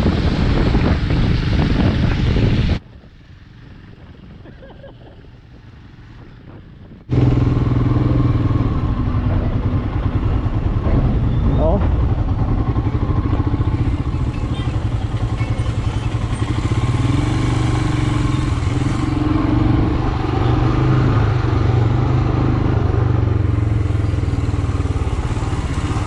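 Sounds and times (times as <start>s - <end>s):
deeper engine tone: 7.1s - 26.0s
motorcycle engine running: 7.1s - 26.0s.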